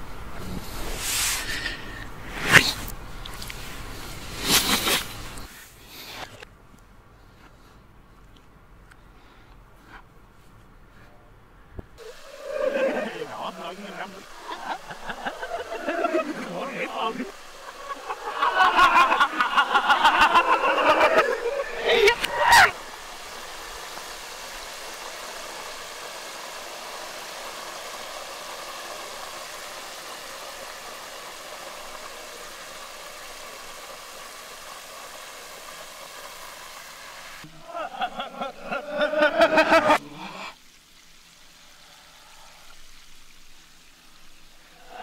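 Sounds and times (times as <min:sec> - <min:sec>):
hot oil sizzling reversed: 0:00.0 - 0:06.5, 0:12.0 - 0:45.0
men's voices: 0:12.0 - 0:22.7.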